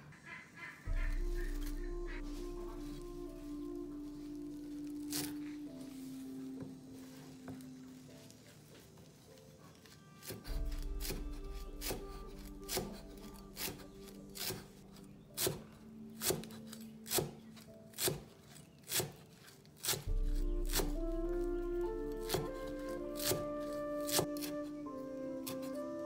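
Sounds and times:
background music: 0:00.0 - 0:26.0
cleaver chopping on wooden block: 0:18.0 - 0:18.3.

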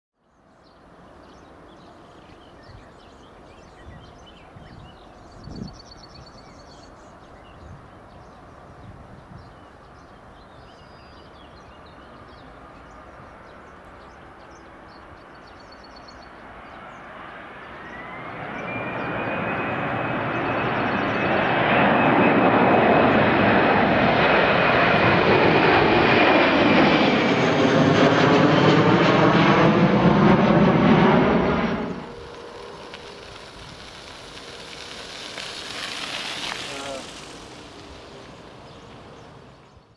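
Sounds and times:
jet engines roaring overhead: 0:16.3 - 0:39.9.

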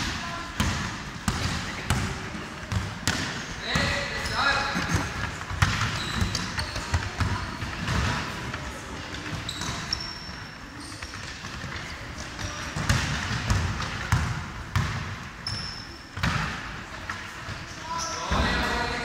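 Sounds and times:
sneaker squeaks: 0:00.6 - 0:08.4, 0:09.0 - 0:14.2, 0:14.8 - 0:16.6, 0:17.2 - 0:19.0
basketball bouncing on wooden floor: 0:12.4 - 0:15.1.

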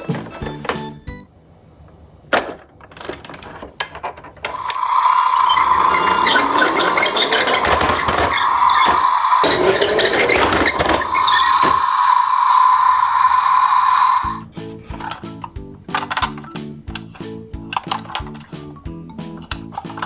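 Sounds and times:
toy grinding mechanical whirr: 0:04.5 - 0:14.4
plastic toy knocks and clicks: 0:14.9 - 0:18.7, 0:19.3 - 0:20.0.

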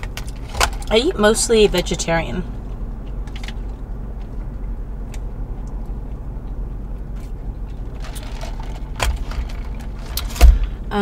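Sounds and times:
car cabin rumble: 0:00.0 - 0:11.0
thump: 0:10.3 - 0:10.8.

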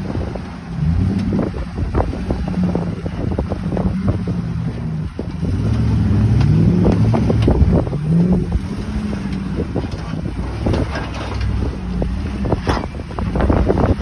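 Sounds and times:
off-road vehicle engine revving: 0:00.0 - 0:14.0
knocks and clatter: 0:09.2 - 0:14.0.

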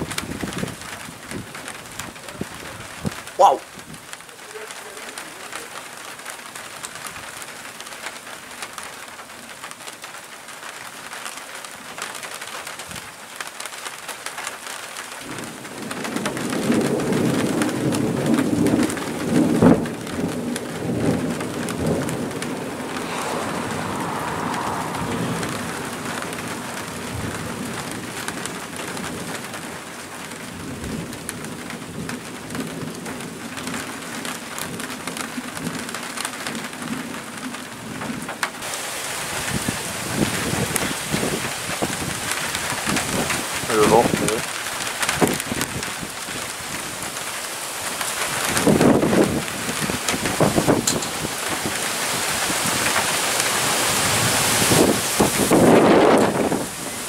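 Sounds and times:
steady rain: 0:00.0 - 0:57.0
thunder rumbling: 0:15.2 - 0:33.8, 0:47.9 - 0:57.0.

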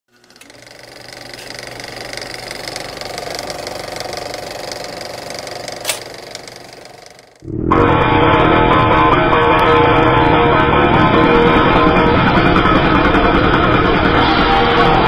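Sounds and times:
motorcycle engine idling: 0:00.2 - 0:07.4
sharp click: 0:05.8 - 0:06.1.

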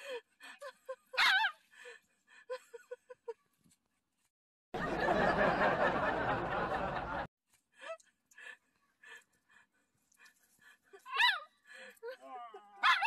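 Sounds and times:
canned laughter: 0:04.8 - 0:07.3.

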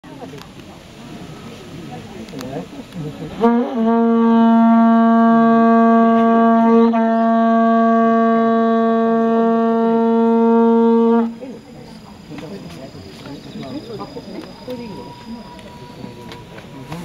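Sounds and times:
conch-shell trumpet note: 0:03.4 - 0:11.5.

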